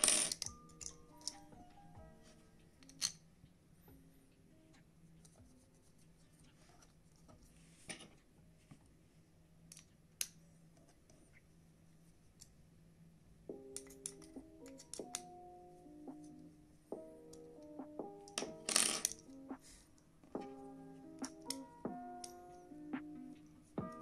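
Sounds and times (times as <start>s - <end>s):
small metal and plastic parts clicking: 0.0s - 1.4s, 2.8s - 3.2s
background music: 0.0s - 7.8s, 13.4s - 24.0s.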